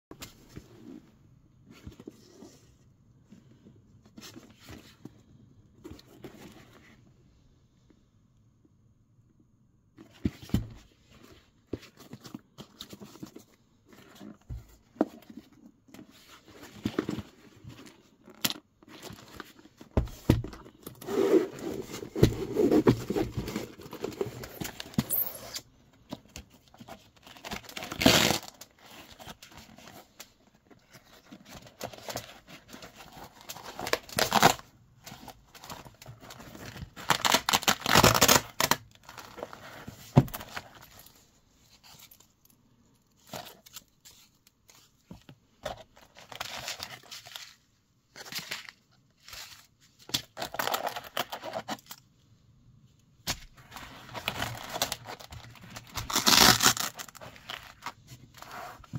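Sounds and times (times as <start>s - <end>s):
zipper opening: 21.0s - 25.6s
velcro ripping: 56.0s - 57.2s.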